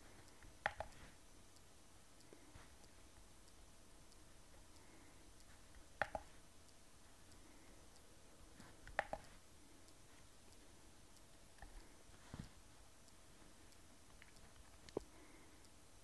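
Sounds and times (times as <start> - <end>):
device control clicks: 0.3 - 1.1, 5.7 - 6.4, 8.8 - 9.4.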